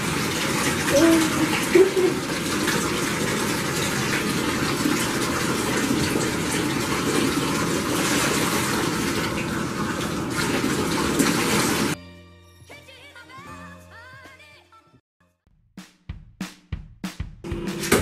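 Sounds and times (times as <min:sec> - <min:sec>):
water gushing into bathtub: 0:00.0 - 0:12.0.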